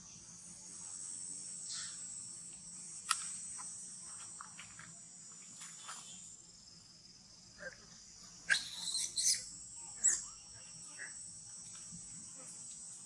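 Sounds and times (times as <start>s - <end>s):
insects chirring: 0.0s - 13.0s
sharp click: 3.0s - 3.4s.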